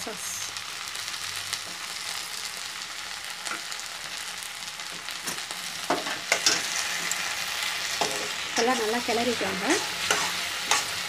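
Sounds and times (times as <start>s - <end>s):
vegetables sizzling in oil: 0.0s - 11.0s
spatula scraping a pan: 7.8s - 11.0s.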